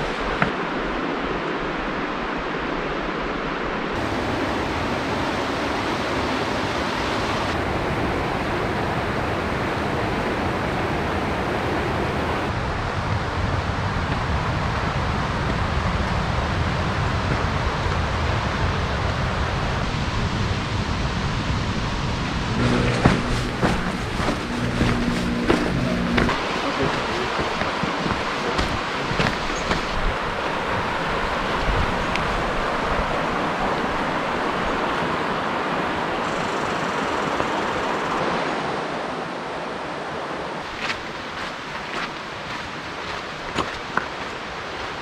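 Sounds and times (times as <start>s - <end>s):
wind: 0.0s - 45.0s
creek cascading over rocks: 23.0s - 36.2s, 38.2s - 45.0s.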